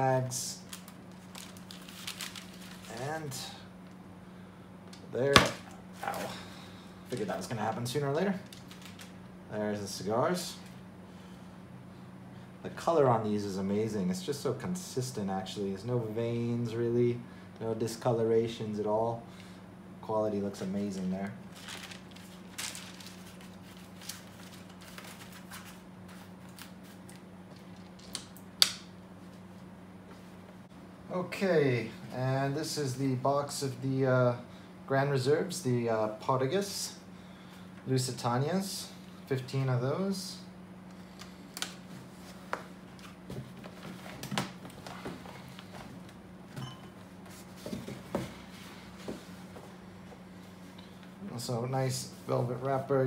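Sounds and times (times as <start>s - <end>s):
low steady hum: 0.0s - 53.0s
paper rustling: 0.7s - 3.1s, 8.4s - 9.1s, 21.5s - 27.2s.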